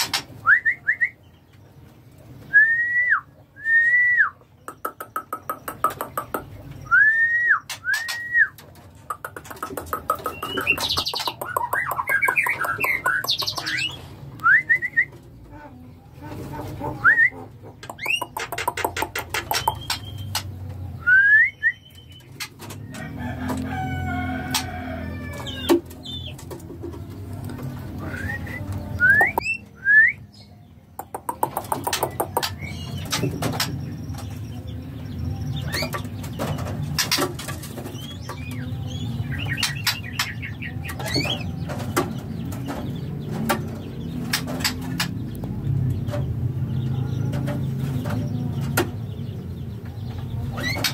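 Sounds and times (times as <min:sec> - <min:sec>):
bird whistling and chattering: 0:06.8 - 0:08.6, 0:17.0 - 0:20.4
bird chirps and call notes: 0:17.9 - 0:20.5
rooster crowing: 0:23.0 - 0:25.7.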